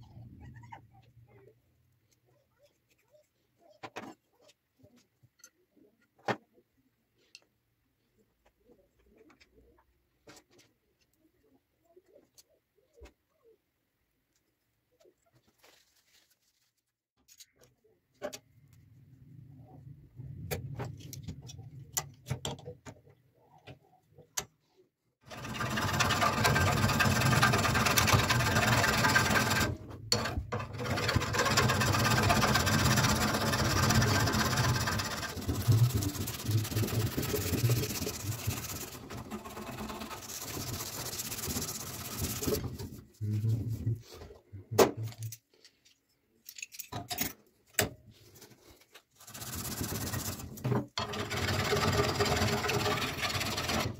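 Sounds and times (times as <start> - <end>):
tools clicking and tapping: 45.1 - 48.0.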